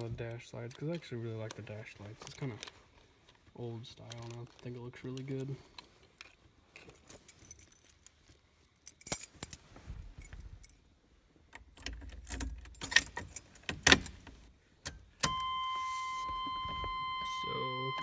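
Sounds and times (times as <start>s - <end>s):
keys jangling: 5.8s - 9.6s, 11.8s - 14.2s.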